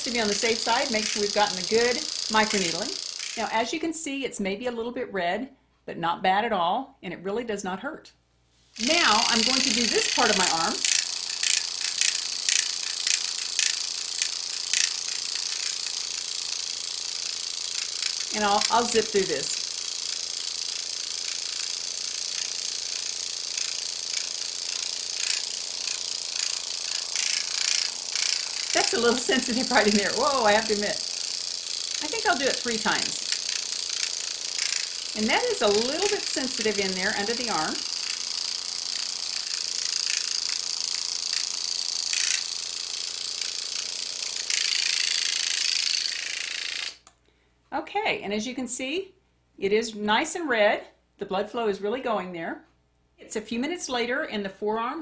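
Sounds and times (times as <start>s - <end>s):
high-pitched motor whir: 0.0s - 3.6s, 8.8s - 47.1s
microneedling pen buzzing: 0.0s - 3.8s, 8.8s - 47.1s.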